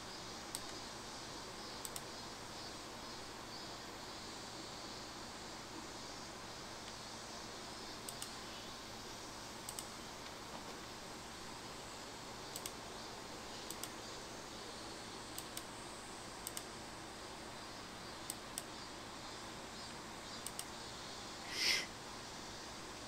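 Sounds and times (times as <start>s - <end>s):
faint steady hiss: 0.0s - 23.0s
computer mouse clicking: 0.5s - 0.8s, 1.8s - 2.1s, 8.1s - 8.4s, 9.6s - 10.4s, 12.5s - 12.8s, 13.6s - 14.0s, 15.4s - 15.7s, 16.4s - 16.7s, 18.2s - 18.7s, 20.4s - 20.7s.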